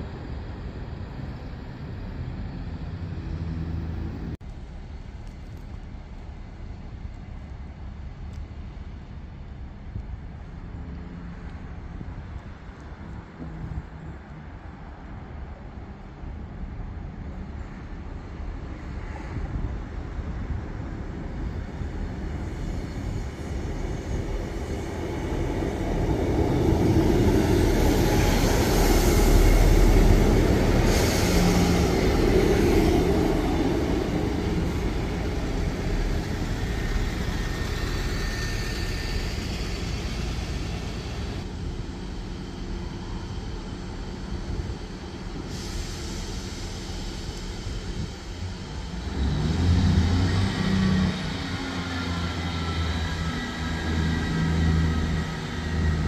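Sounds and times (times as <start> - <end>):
diesel train passing: 0.0 - 56.0
train wheel noise: 20.4 - 56.0.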